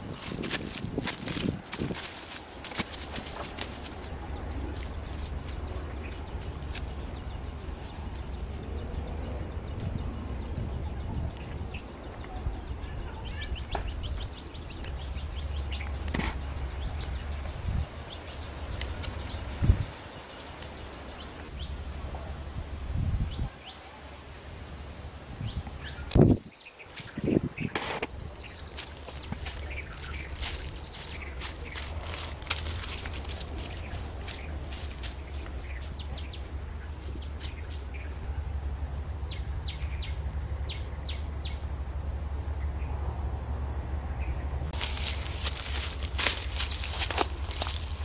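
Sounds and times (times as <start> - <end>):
steady low rumble: 0.0 - 23.6, 27.1 - 48.0
bird chirping: 25.4 - 38.5, 39.1 - 43.0.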